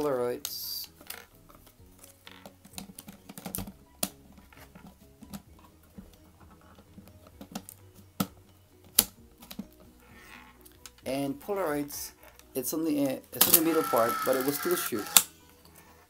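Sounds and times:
camera clicks and snaps: 0:13.4 - 0:15.3.

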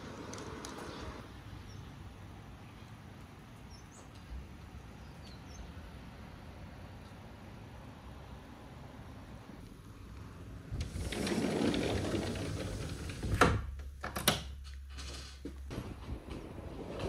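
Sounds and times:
sliding glass door rumbling: 0:10.6 - 0:13.8, 0:14.9 - 0:17.0.

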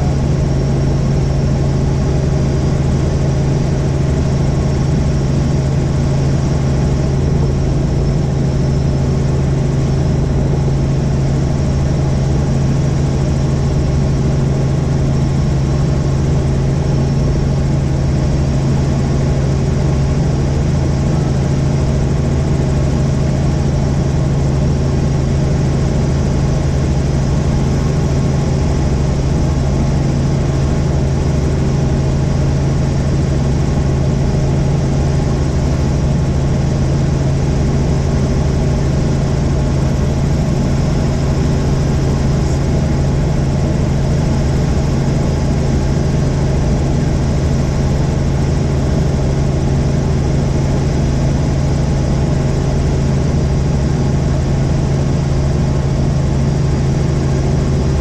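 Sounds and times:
helicopter engine and rotors: 0:00.0 - 0:58.0.

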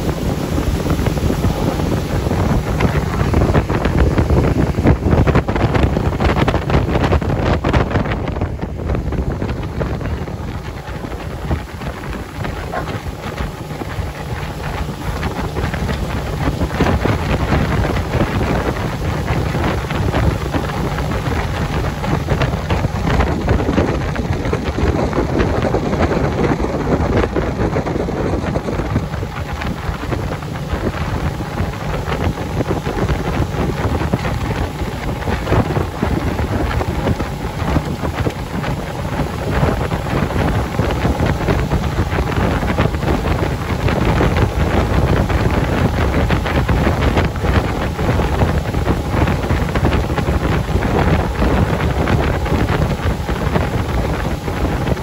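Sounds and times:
boat engine drone: 0:00.0 - 0:55.0
water rushing past hull: 0:00.0 - 0:55.0
wind buffeting microphone: 0:00.0 - 0:55.0.

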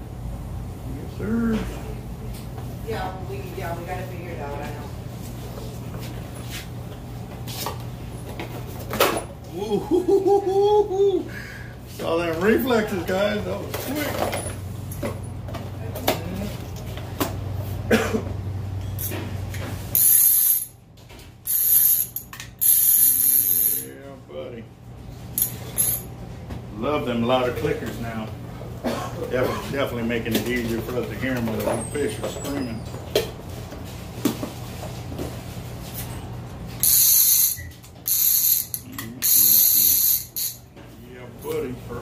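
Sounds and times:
fishing reel clicker buzzing: 0:21.5 - 0:23.8, 0:36.8 - 0:40.6.

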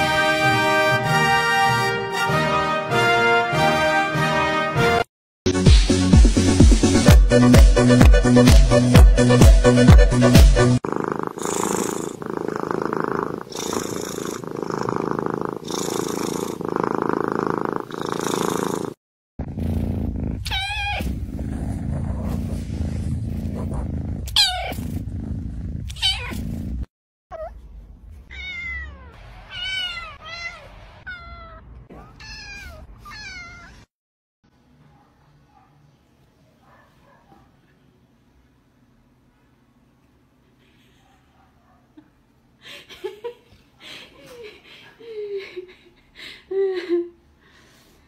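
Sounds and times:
cat purring: 0:10.8 - 0:26.9
cat meowing: 0:20.5 - 0:21.0, 0:28.3 - 0:33.8.

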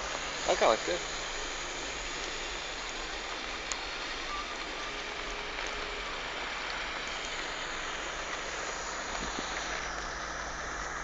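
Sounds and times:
low engine hum: 0:00.0 - 0:11.0
tyre and road noise: 0:00.0 - 0:11.0.

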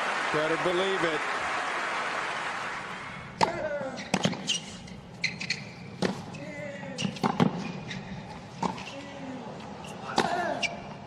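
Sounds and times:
racket striking ball: 0:03.3 - 0:04.5, 0:06.0 - 0:06.3, 0:07.0 - 0:07.7
tennis ball bouncing: 0:03.3 - 0:06.3, 0:07.0 - 0:07.9, 0:08.5 - 0:08.9.

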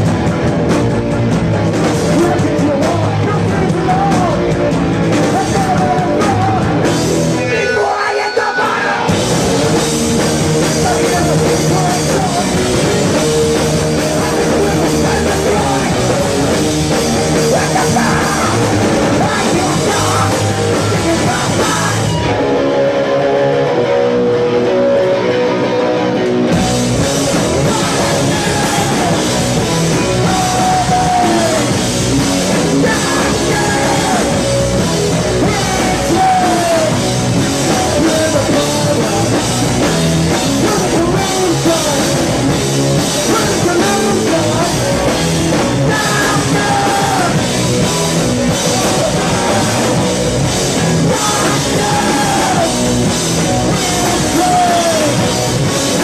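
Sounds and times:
bass guitar: 0:00.0 - 0:56.0
distorted electric guitar: 0:00.0 - 0:56.0
drums: 0:00.0 - 0:56.0
shouted vocals: 0:05.3 - 0:09.2, 0:17.1 - 0:22.7, 0:27.3 - 0:39.4, 0:43.2 - 0:56.0.

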